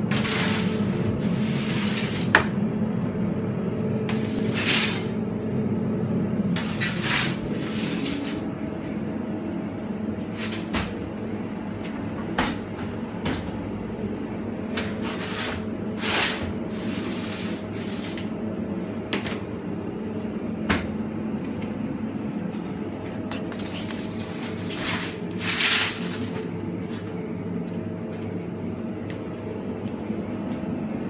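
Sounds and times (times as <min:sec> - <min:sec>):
metal boards scraping over shelves: 0:00.0 - 0:02.4, 0:04.1 - 0:05.2, 0:06.5 - 0:08.5, 0:10.3 - 0:10.8, 0:14.8 - 0:18.3, 0:23.6 - 0:27.1
hum of bakery machinery: 0:00.0 - 0:31.0.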